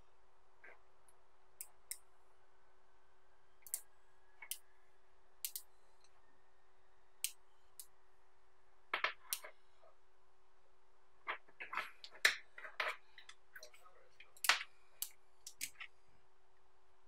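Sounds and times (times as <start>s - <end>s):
magnetic balls clicking together: 5.4s - 5.7s, 11.2s - 15.9s.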